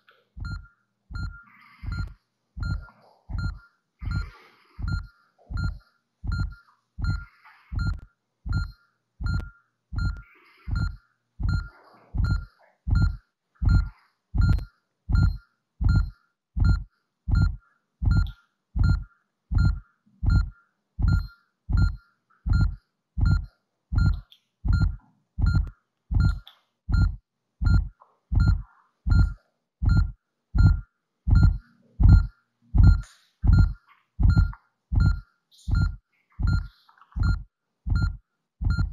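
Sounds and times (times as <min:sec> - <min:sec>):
electronic monitor beep: 0:00.4 - 0:38.9
low heartbeat thump: 0:24.0 - 0:38.9.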